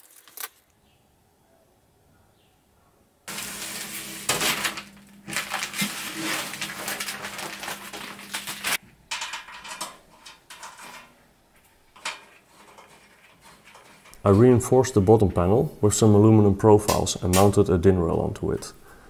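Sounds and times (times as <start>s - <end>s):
sheet metal scraping and rattling: 3.3s - 14.8s.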